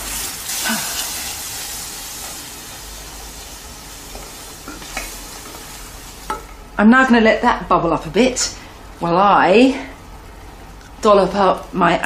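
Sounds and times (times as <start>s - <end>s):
sauce bubbling in saucepan: 0.0s - 6.8s.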